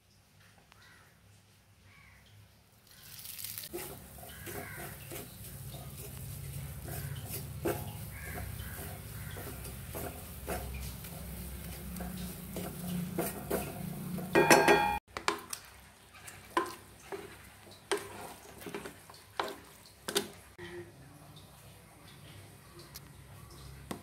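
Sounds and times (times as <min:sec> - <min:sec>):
frying in oil: 0:01.9 - 0:24.0
spatula scraping paste in pan: 0:03.7 - 0:14.9, 0:16.1 - 0:20.5
spatula knocking against metal pot: 0:06.8 - 0:15.4.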